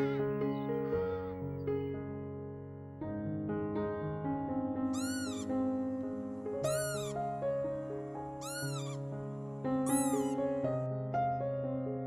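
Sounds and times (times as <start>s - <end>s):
piano-like music: 0.0s - 12.0s
high meow-like animal call: 5.0s - 5.5s, 6.6s - 7.2s, 8.4s - 9.1s, 9.9s - 10.5s.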